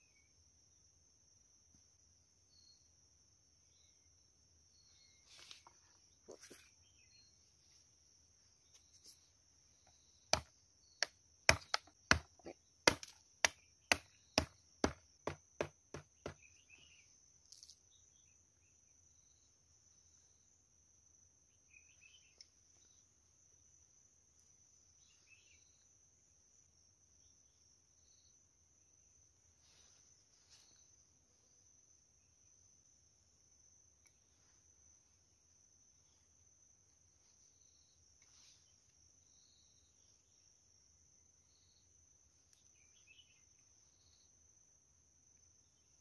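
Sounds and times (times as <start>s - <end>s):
insects droning: 0.0s - 46.0s
machete chopping wood: 10.3s - 16.5s.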